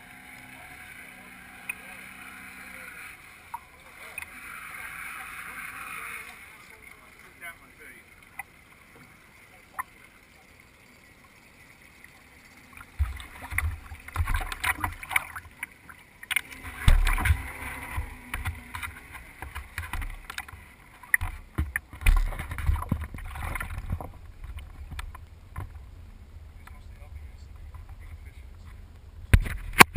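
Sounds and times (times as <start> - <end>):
boat hull sloshing in water: 12.0 - 25.8
boat hull knocking and thudding: 12.8 - 15.6, 16.6 - 25.9, 26.7 - 29.9.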